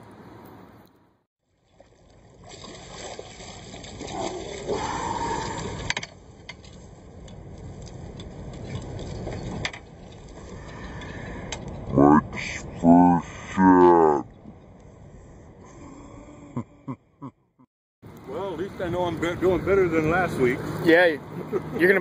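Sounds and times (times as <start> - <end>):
water splashing and sloshing: 1.4 - 12.8
fish thrashing at surface: 1.7 - 6.0.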